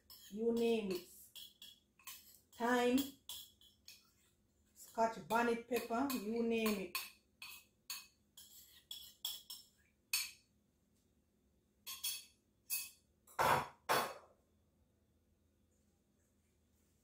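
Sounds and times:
louder knocks on countertop: 13.4 - 14.2.

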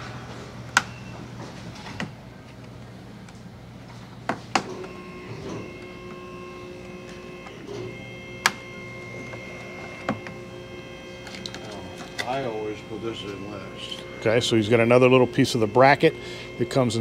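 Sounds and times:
steady hum: 0.0 - 17.0
faint steady tones: 4.6 - 17.0.

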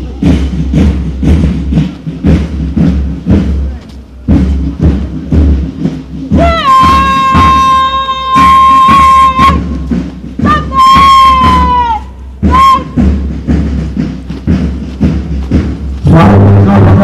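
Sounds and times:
steady drum beat: 0.0 - 17.0
wind instrument long high notes: 6.4 - 13.1.

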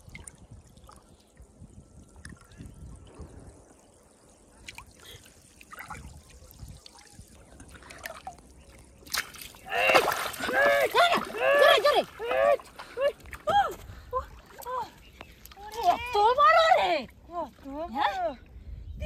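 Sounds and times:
water trickling and dripping: 0.0 - 18.7
fish splashing in water: 9.0 - 12.3.

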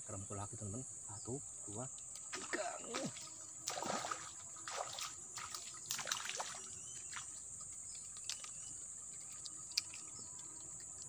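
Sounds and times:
high-pitched insect buzz: 0.1 - 11.0
water splashing: 2.3 - 10.6.

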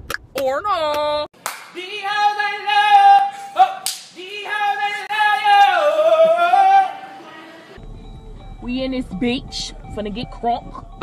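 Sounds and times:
high voice singing: 1.7 - 7.8
sharp smacks: 3.8 - 4.2.

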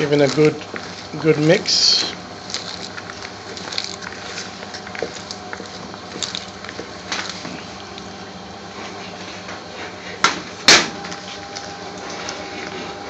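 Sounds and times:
salad mixed in a bowl: 0.0 - 9.4.

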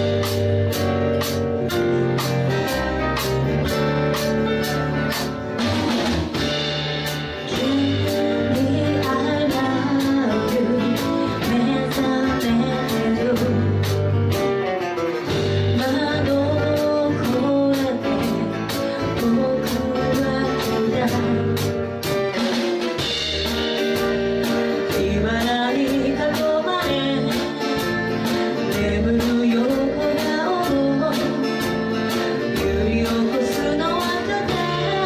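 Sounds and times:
acoustic guitar: 0.0 - 35.0
drum kit with cymbal beat: 0.0 - 35.0
upright bass: 0.0 - 35.0
woman singing into microphone: 7.4 - 14.3, 15.7 - 21.8, 24.7 - 35.0.

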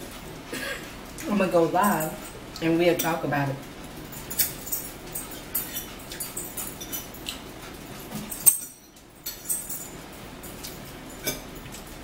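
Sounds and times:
chewing: 3.9 - 8.4.

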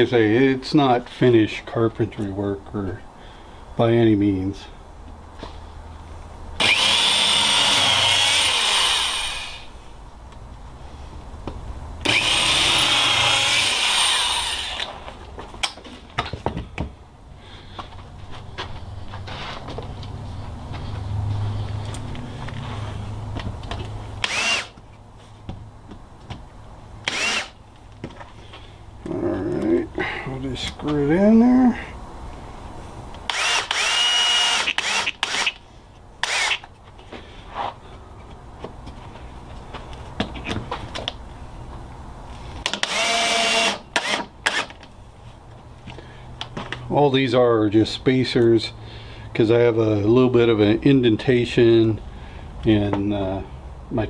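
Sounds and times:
electric drill whining: 6.6 - 9.7, 12.0 - 15.0, 24.2 - 24.8, 27.0 - 27.6, 33.3 - 35.6, 36.2 - 36.6, 42.7 - 44.7.

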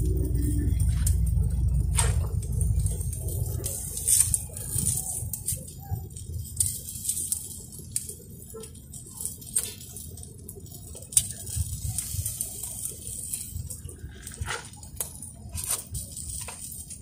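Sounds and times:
low rumble: 0.0 - 6.5
crackles and clicks: 0.0 - 17.0
fish grilling over charcoal: 0.0 - 17.0.

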